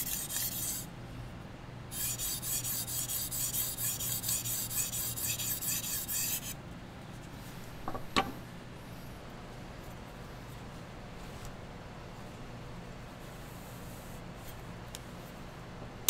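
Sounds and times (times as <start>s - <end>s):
knife scraping on whetstone: 0.0s - 0.9s, 1.9s - 6.6s.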